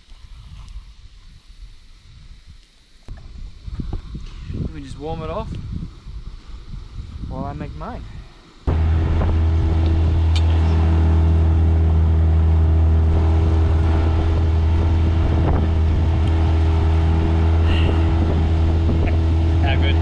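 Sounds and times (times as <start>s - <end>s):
outboard motor running: 8.7s - 20.0s.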